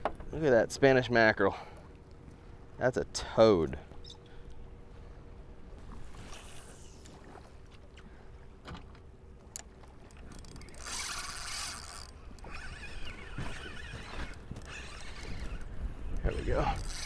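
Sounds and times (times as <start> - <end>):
water: 0.0 - 17.0
wind: 0.0 - 17.0
fishing reel clicks and rubbing: 10.3 - 17.0.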